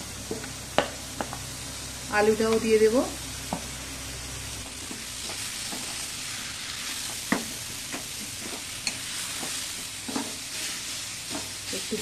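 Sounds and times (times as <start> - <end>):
food sizzling in hot oil: 0.0 - 12.0
wooden spatula knocking and scraping: 7.1 - 10.4.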